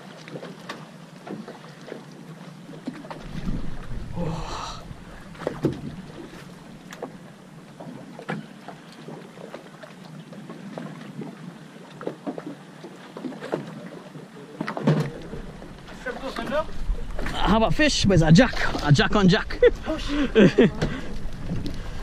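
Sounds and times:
water lapping against hull: 0.0 - 22.0
steady low rumble: 3.2 - 6.9, 15.4 - 22.0.

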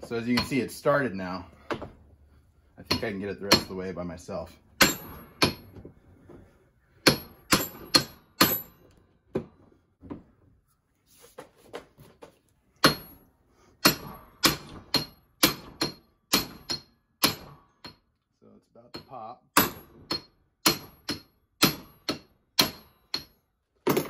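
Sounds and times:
sledgehammer striking metal: 4.8 - 5.7, 7.0 - 8.8, 13.8 - 18.0, 19.0 - 24.0.

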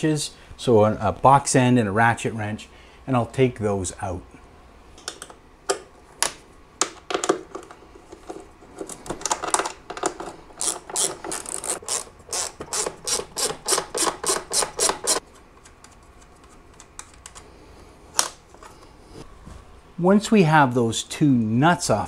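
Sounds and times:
ratchet wrench clicking: 10.6 - 15.2.

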